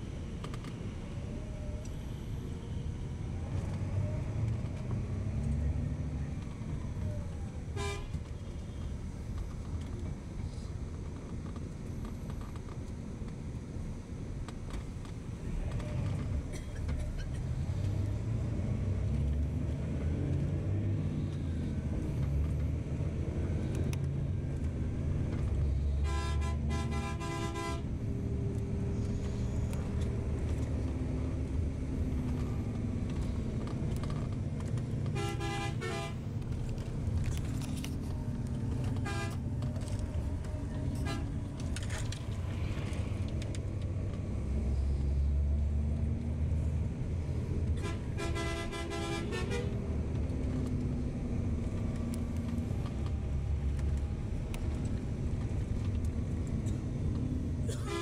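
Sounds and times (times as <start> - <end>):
vehicle engine and road noise: 0.0 - 58.0
vehicle horn toots: 26.0 - 27.8, 35.1 - 36.2, 39.0 - 39.4, 47.8 - 49.7.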